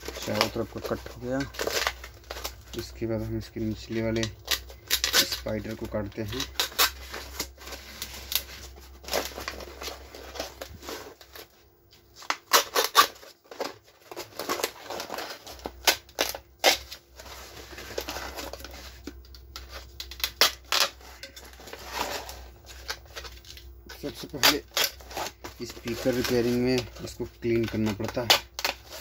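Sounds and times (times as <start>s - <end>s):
paper snipping and ripping: 24.0s - 29.0s.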